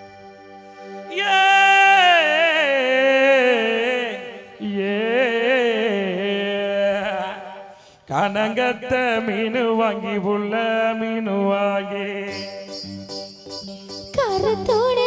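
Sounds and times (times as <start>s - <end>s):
sustained backing drone: 0.0s - 1.9s
man singing wavering notes: 1.0s - 7.6s, 9.6s - 13.6s.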